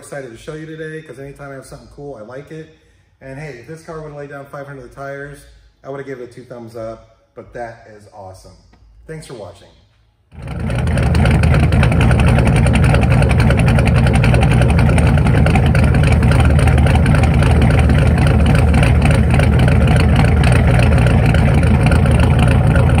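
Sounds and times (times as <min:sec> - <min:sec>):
car engine idling: 0:10.3 - 0:23.0.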